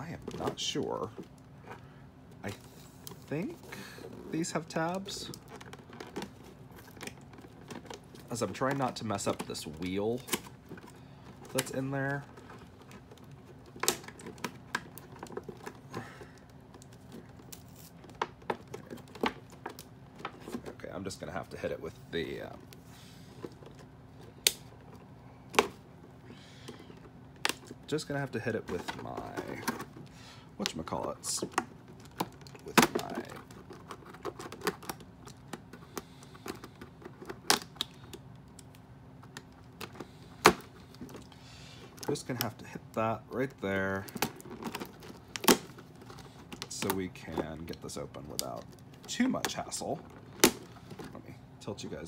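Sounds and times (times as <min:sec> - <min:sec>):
fingers clicking plastic packaging: 0:04.7 - 0:20.8, 0:28.8 - 0:42.6, 0:43.4 - 0:51.2
plastic snapping: 0:24.4 - 0:25.8, 0:44.1 - 0:47.0, 0:49.4 - 0:51.1.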